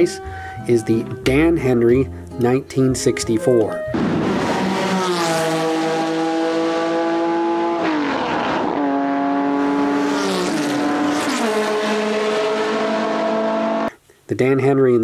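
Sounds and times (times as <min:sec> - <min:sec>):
racing car engine revving high: 0:04.0 - 0:13.9.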